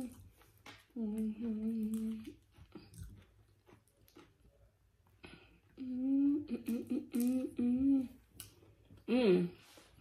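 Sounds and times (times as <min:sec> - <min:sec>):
chewing chips crunching: 0:00.0 - 0:04.7
woman humming: 0:01.0 - 0:02.3, 0:05.8 - 0:08.2, 0:09.1 - 0:09.6.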